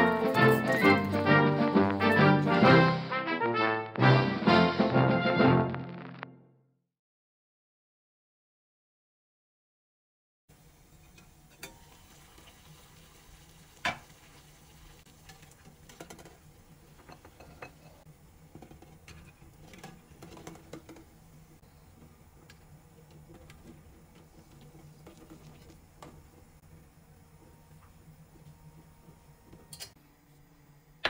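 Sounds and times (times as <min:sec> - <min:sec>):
eggs knocking against saucepan: 0:15.9 - 0:17.9.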